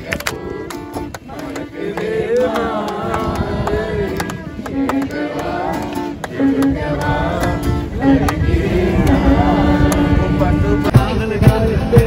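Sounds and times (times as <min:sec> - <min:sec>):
acoustic guitar: 0:02.4 - 0:12.0
violin melody: 0:04.6 - 0:10.9
sharp percussive hits: 0:10.9 - 0:12.0.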